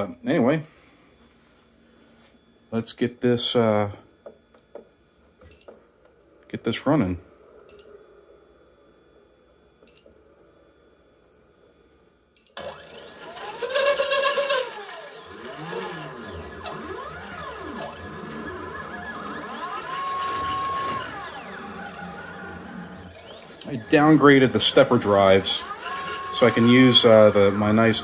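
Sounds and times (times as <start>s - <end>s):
stepper motors whining: 12.6s - 28.0s.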